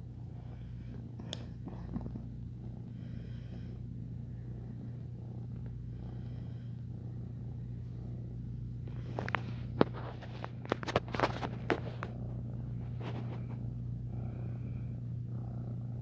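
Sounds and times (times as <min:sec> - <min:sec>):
kitten purring: 0:00.0 - 0:16.0
soft rustles and clicks: 0:08.8 - 0:13.9.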